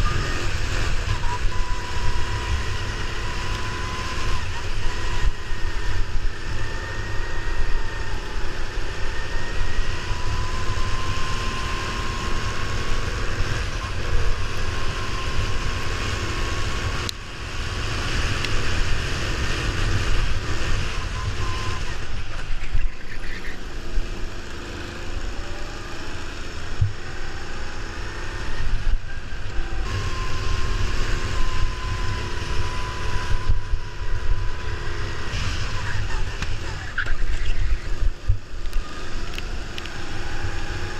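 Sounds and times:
go-kart engine whine: 0:00.0 - 0:40.9
wind rumble on microphone: 0:28.4 - 0:40.9.

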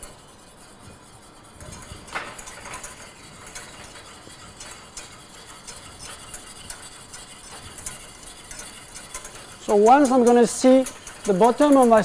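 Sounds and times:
whisk scraping and ticking in pan: 0:00.0 - 0:12.0.

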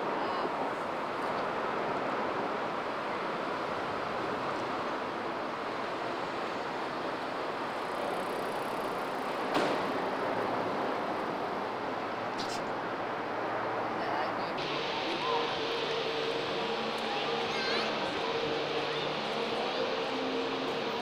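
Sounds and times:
outdoor background hiss: 0:14.5 - 0:21.0.

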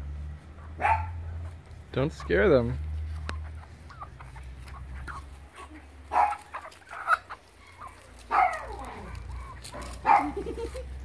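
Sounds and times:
chickens clucking: 0:00.1 - 0:11.0.

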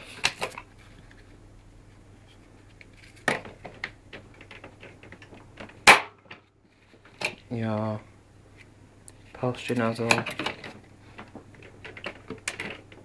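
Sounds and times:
plastic tools clicking and knocking: 0:03.2 - 0:06.4, 0:10.1 - 0:13.0
sharp loud plastic clack: 0:05.8 - 0:06.4.

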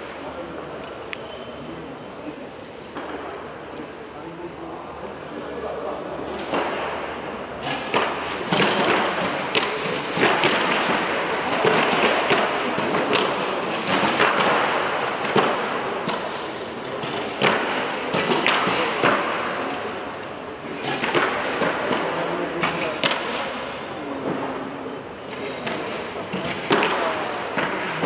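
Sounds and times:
arrows thudding into targets: 0:07.6 - 0:19.9.

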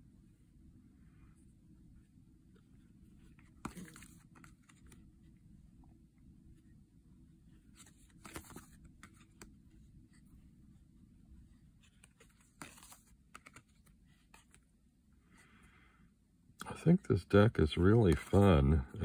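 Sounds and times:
cards sliding and tapping: 0:03.2 - 0:05.1, 0:07.6 - 0:10.2, 0:11.8 - 0:14.7, 0:18.0 - 0:18.5.

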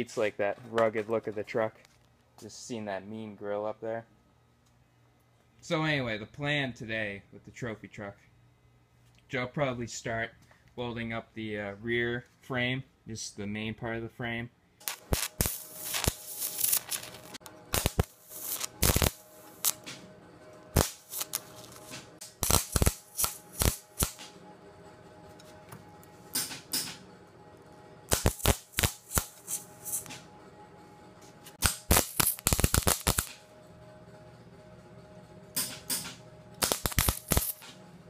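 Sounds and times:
welding arc crackles: 0:14.8 - 0:19.9, 0:20.8 - 0:24.3, 0:28.1 - 0:30.2, 0:31.6 - 0:33.4, 0:36.6 - 0:37.8.

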